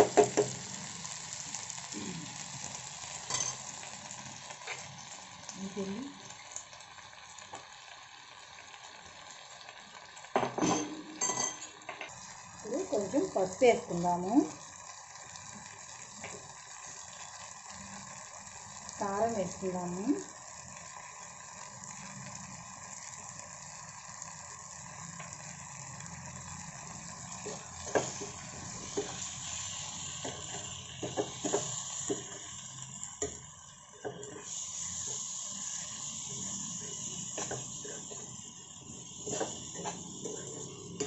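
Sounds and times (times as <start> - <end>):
vegetables sizzling in a pan: 0.0 - 41.0
steel spoon scraping a pan: 27.4 - 32.6, 34.0 - 41.0.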